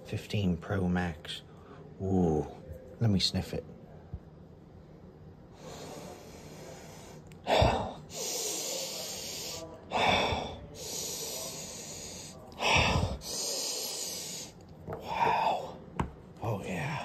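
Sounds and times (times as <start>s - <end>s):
person sniffing loudly: 5.6s - 14.6s.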